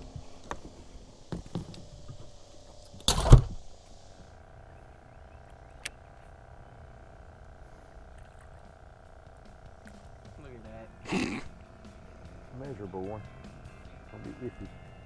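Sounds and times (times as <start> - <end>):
faint steady whine: 0.0 - 15.0
sharp click: 5.8 - 6.0.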